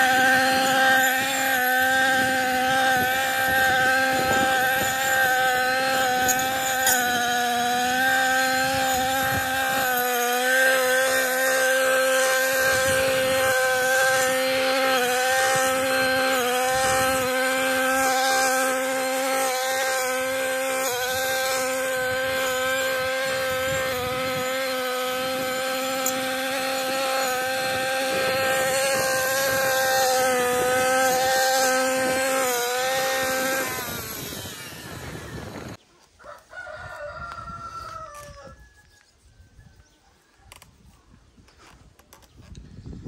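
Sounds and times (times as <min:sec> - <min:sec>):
brushcutter engine running: 0:00.0 - 0:35.8
rooster crowing: 0:36.2 - 0:39.8.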